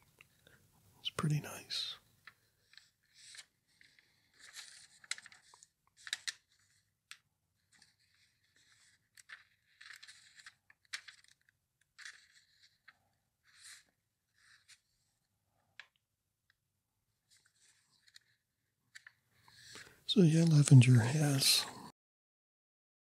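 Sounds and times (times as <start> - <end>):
crisp page ticks: 2.2 - 13.8
catalog pages turning: 2.2 - 15.2, 17.3 - 21.7.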